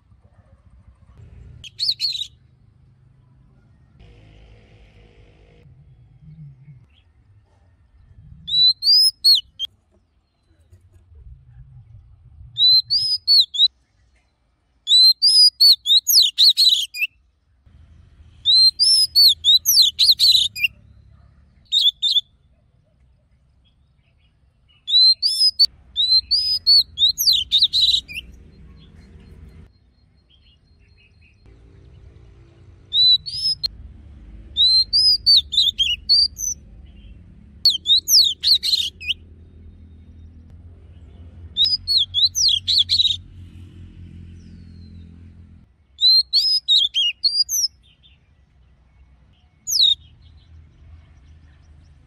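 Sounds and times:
bird singing whistled notes: 0:01.6 - 0:02.4, 0:08.4 - 0:09.7, 0:12.6 - 0:13.7, 0:14.9 - 0:17.2, 0:18.4 - 0:20.8, 0:21.6 - 0:22.4, 0:24.1 - 0:28.4, 0:32.9 - 0:33.7, 0:34.6 - 0:40.4, 0:41.6 - 0:43.2, 0:46.0 - 0:48.3, 0:49.4 - 0:50.5.

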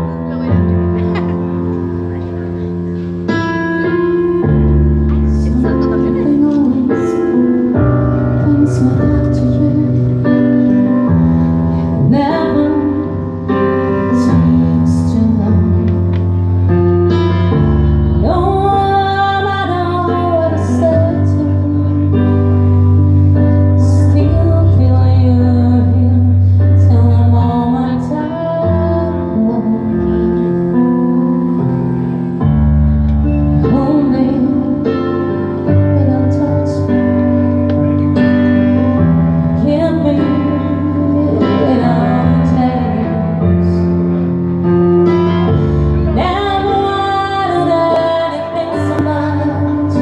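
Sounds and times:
woman singing: 0:05.3 - 0:11.0, 0:11.8 - 0:16.3, 0:18.2 - 0:22.5, 0:23.5 - 0:30.6, 0:33.6 - 0:37.6, 0:39.5 - 0:43.9, 0:46.0 - 0:50.0.

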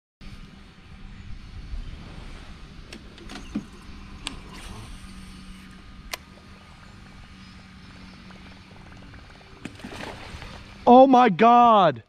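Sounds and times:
steady low hum: 0:00.2 - 0:12.0.

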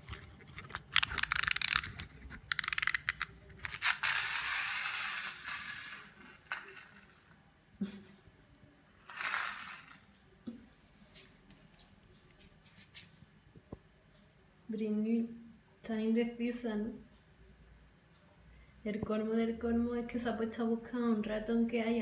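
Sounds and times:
wind-up key ratcheting clicks: 0:00.9 - 0:03.3
clockwork toy whirring: 0:01.0 - 0:07.3, 0:09.1 - 0:10.1.

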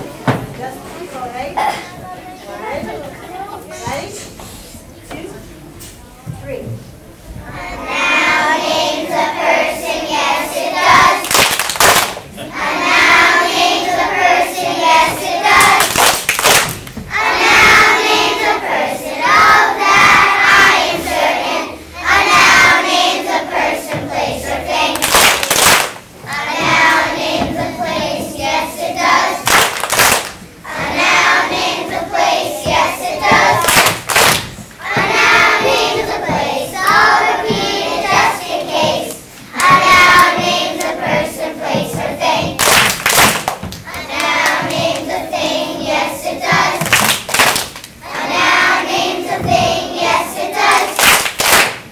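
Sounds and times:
children's choir singing: 0:07.4 - 0:11.6, 0:12.2 - 0:25.6, 0:26.2 - 0:29.7, 0:30.6 - 0:51.4
hand claps: 0:11.2 - 0:12.2, 0:15.6 - 0:17.0, 0:24.9 - 0:26.0, 0:29.4 - 0:30.4, 0:33.3 - 0:34.6, 0:42.5 - 0:45.1, 0:46.8 - 0:48.0, 0:50.7 - 0:51.9.

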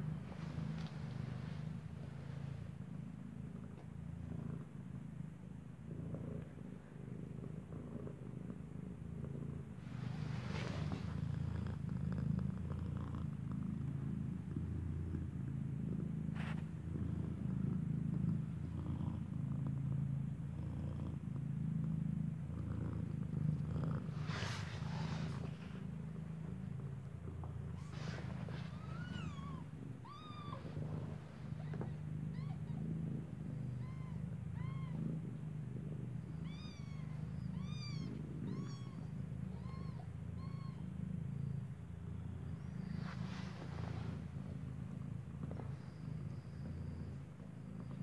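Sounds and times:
cat purring: 0:00.0 - 0:48.0
scratchy rustles: 0:00.1 - 0:02.8, 0:09.8 - 0:13.2, 0:16.3 - 0:16.8, 0:23.9 - 0:29.4, 0:42.8 - 0:46.0.

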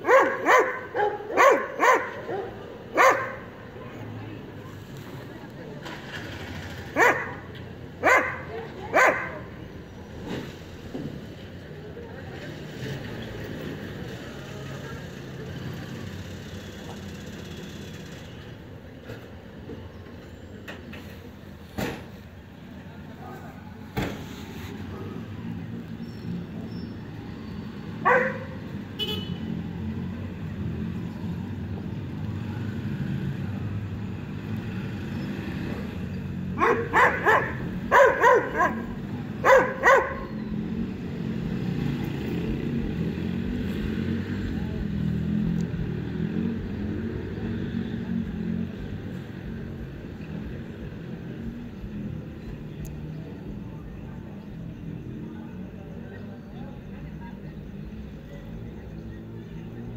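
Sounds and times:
dog barking: 0:00.0 - 0:03.5, 0:06.9 - 0:09.5, 0:28.0 - 0:28.6, 0:36.6 - 0:40.4
street noise: 0:00.0 - 0:59.9.

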